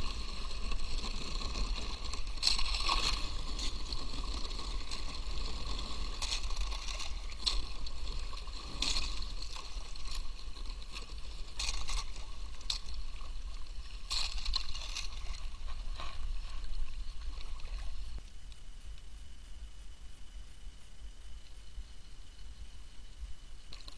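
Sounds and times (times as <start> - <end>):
paddle splashing in water: 0.0 - 18.2
water moving along hull: 0.0 - 18.3.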